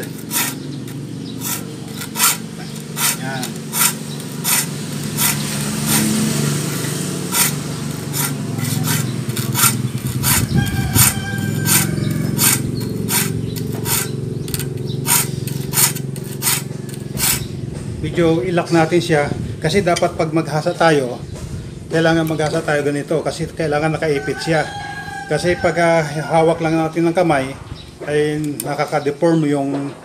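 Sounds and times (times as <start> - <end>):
file rasping on saw teeth: 0.0 - 17.6.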